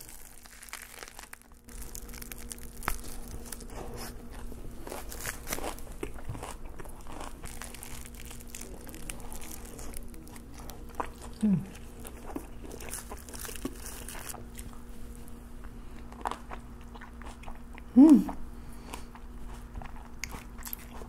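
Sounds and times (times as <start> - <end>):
paper wrapper crinkling: 0.0 - 4.2, 4.8 - 6.0, 7.4 - 10.8, 12.7 - 14.4
crunchy bites and chewing: 0.0 - 17.9, 18.8 - 21.0.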